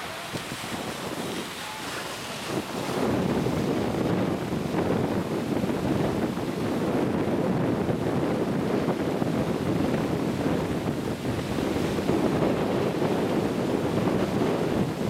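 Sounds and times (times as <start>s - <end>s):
small waves breaking on beach: 0.0s - 15.0s
wind buffeting microphone: 0.0s - 15.0s.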